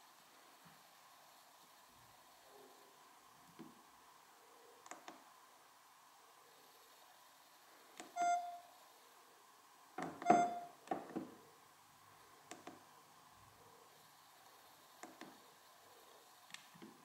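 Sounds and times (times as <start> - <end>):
phone key-press beeps: 8.2 - 8.6, 10.2 - 10.7.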